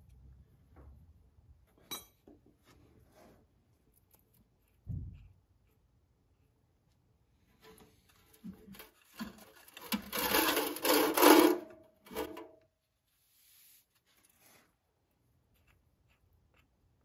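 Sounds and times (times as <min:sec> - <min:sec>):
metal pan scraping on concrete: 0:08.5 - 0:12.5.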